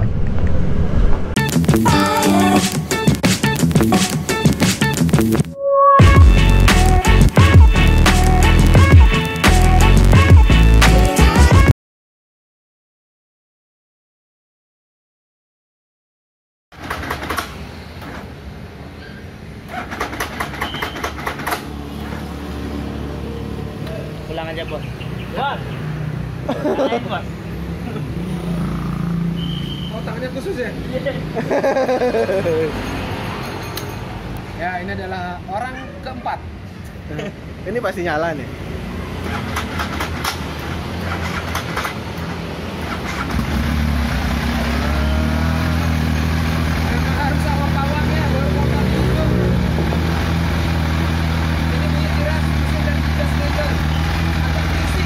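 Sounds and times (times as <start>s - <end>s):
low hum: 0.0s - 1.4s
motorcycle engine starting and idling: 16.7s - 18.4s, 19.6s - 22.3s, 39.1s - 48.4s.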